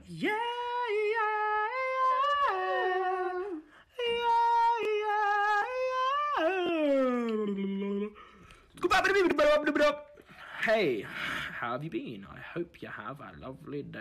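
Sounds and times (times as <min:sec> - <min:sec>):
man singing wordless tune: 0:00.0 - 0:10.1.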